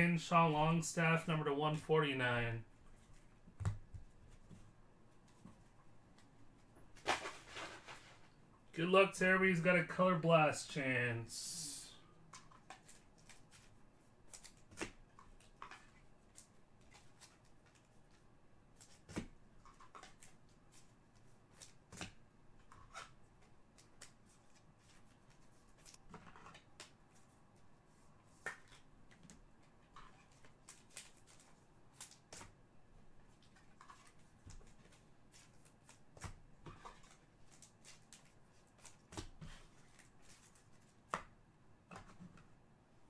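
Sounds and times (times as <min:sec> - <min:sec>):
trading cards rustling and clicking: 0:28.3 - 0:32.6, 0:33.3 - 0:41.2.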